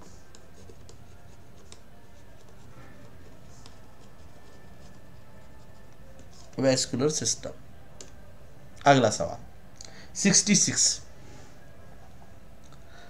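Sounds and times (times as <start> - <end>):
stylus scratching on pen tablet: 0.0 - 6.9
low background hum: 0.0 - 13.0.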